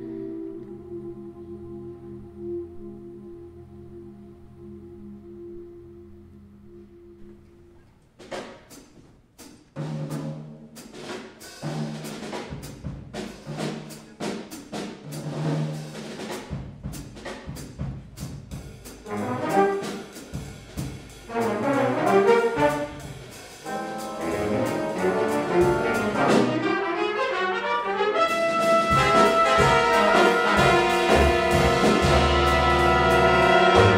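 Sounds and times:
jazz big band playing: 0:06.6 - 0:33.9
brass and saxophones: 0:18.9 - 0:33.9
low bass notes: 0:29.0 - 0:33.9.

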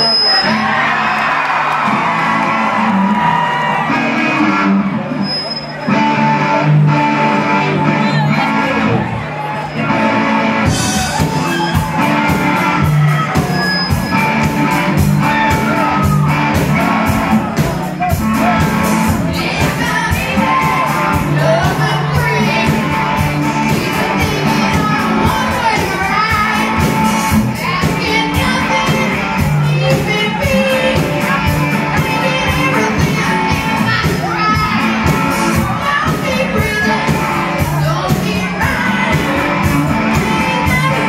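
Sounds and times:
electric guitars: 0:00.0 - 0:41.0
drum kit beat: 0:10.5 - 0:41.0
person singing: 0:10.6 - 0:41.0.

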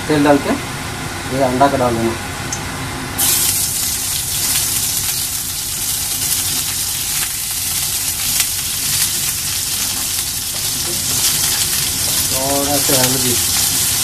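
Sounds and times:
crackles and spatters: 0:03.2 - 0:14.0
oil sizzling in a pan: 0:03.2 - 0:14.0.

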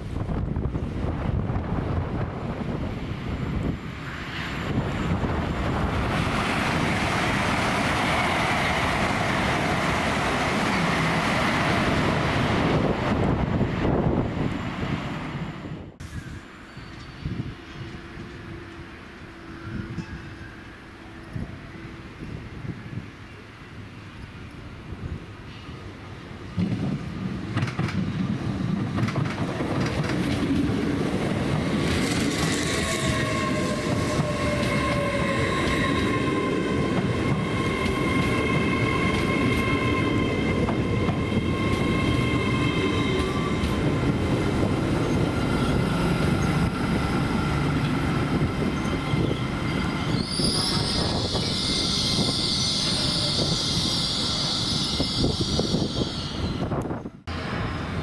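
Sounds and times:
train rumbling: 0:00.0 - 0:58.0
high squealing brakes: 0:16.0 - 0:18.0, 0:32.5 - 0:43.7, 0:48.4 - 0:56.8.

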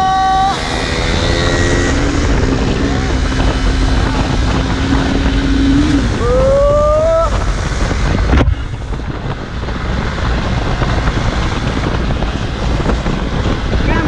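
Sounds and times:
motorcycle engine: 0:00.0 - 0:14.0
wind rumble on microphone: 0:00.0 - 0:14.0.

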